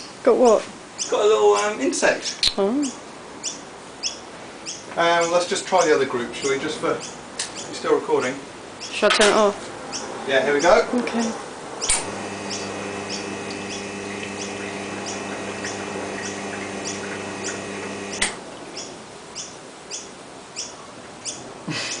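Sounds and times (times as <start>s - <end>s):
pump switch click: 11.9s - 18.4s
espresso pump humming: 12.0s - 18.4s.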